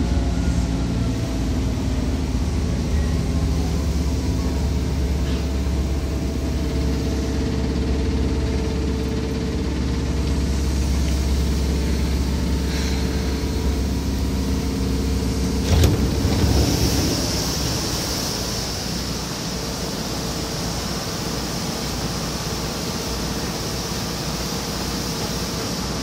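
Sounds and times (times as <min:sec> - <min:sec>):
electric train hum: 0:00.0 - 0:26.0
high hiss: 0:10.4 - 0:26.0.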